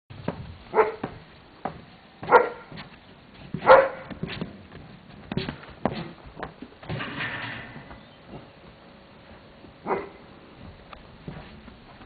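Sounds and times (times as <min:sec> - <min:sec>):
dog barking: 0:00.7 - 0:01.0, 0:02.2 - 0:02.7, 0:03.6 - 0:04.1, 0:09.8 - 0:10.2.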